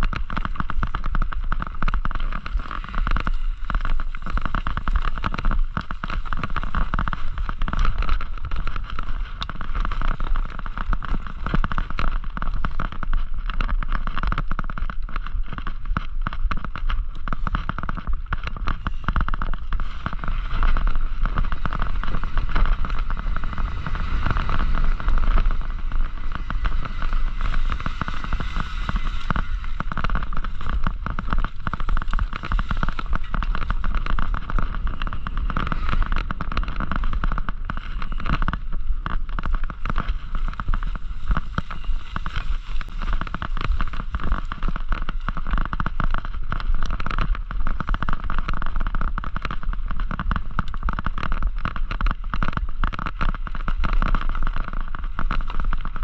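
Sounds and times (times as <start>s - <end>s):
bike rattling over rough trail: 0.0s - 56.0s
low rumble: 18.2s - 45.3s.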